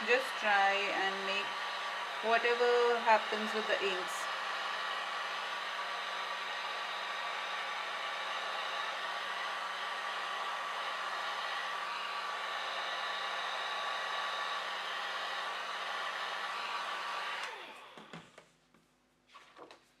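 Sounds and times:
hair dryer blowing: 0:00.0 - 0:18.4
paper handling sounds: 0:19.3 - 0:20.0.

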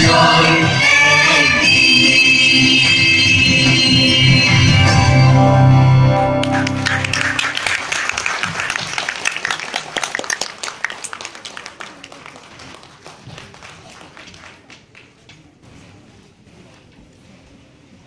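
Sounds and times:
audience applauding: 0:06.4 - 0:15.2.

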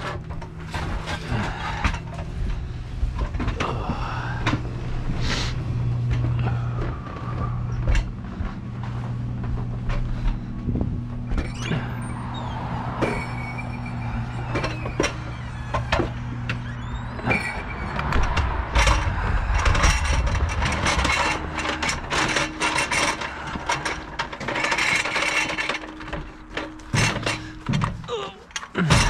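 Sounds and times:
low machine hum: 0:00.0 - 0:29.0
hand truck rattling over ground: 0:06.1 - 0:29.0.

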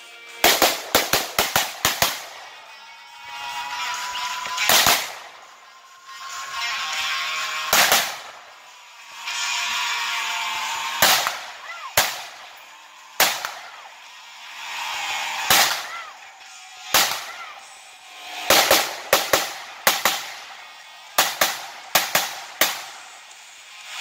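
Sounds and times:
pistol shots: 0:00.4 - 0:02.5, 0:04.5 - 0:05.3, 0:07.7 - 0:08.4, 0:10.9 - 0:12.5, 0:13.1 - 0:13.7, 0:15.4 - 0:16.0, 0:16.8 - 0:17.4, 0:18.4 - 0:23.2.

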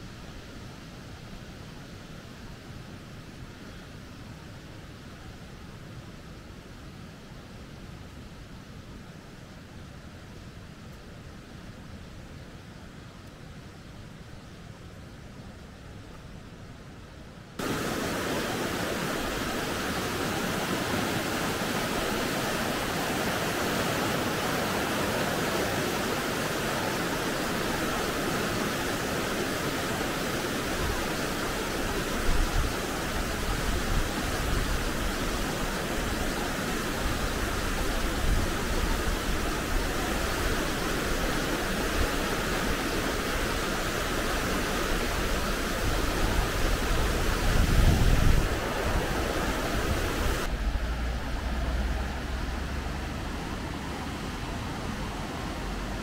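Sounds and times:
mountain stream rushing: 0:17.6 - 0:56.0.

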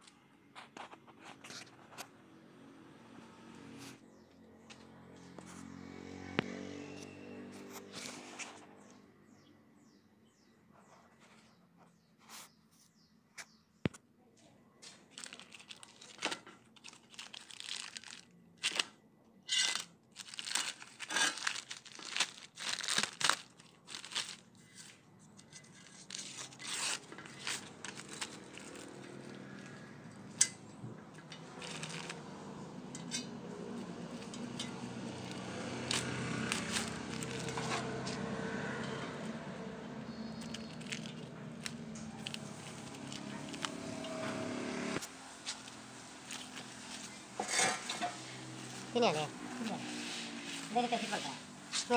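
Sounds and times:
plastic film rustling and crinkling: 0:14.9 - 0:18.9, 0:19.6 - 0:29.8, 0:31.4 - 0:32.7, 0:33.7 - 0:51.9
plastic film ripping: 0:15.1 - 0:25.0, 0:25.7 - 0:29.8, 0:31.4 - 0:32.6, 0:34.0 - 0:49.1.

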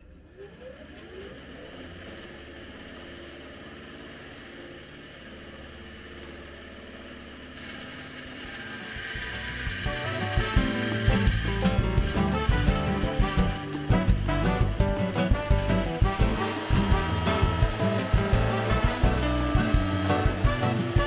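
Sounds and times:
bandsaw motor humming: 0:00.5 - 0:21.0
saw blade cutting plastic: 0:07.5 - 0:14.5, 0:15.1 - 0:21.0.

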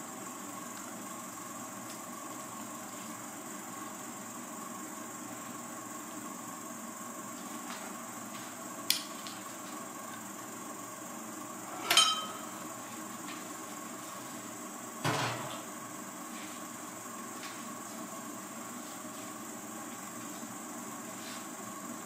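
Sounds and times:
steady hiss: 0:00.0 - 0:22.0
kitchenware clinking on glass dish: 0:11.8 - 0:12.6.

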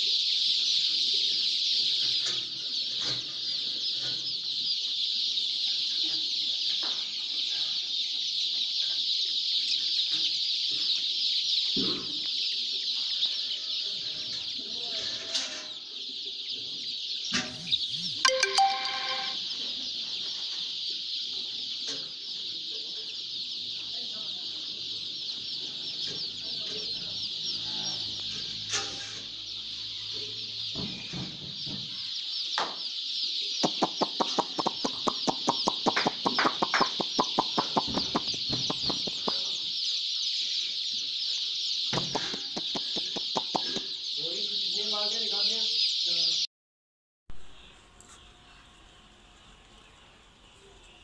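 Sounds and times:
chicks peeping: 0:00.0 - 0:46.4
rapid sharp clicks: 0:33.6 - 0:39.3.

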